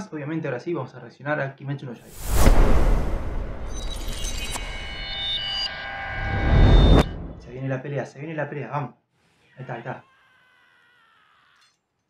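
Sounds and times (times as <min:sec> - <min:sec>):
low rumble: 0:02.1 - 0:07.5
high synth tones: 0:02.2 - 0:07.5.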